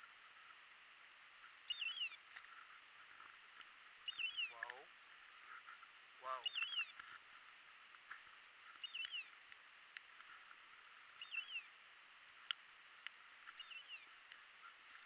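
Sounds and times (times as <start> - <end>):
grass rustling: 0.0 - 15.0.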